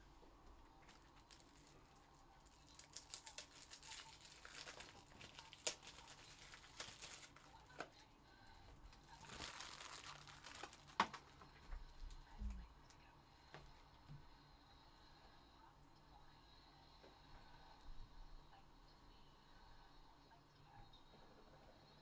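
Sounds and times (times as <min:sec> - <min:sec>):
faint crinkling and rustling: 0:00.0 - 0:14.3.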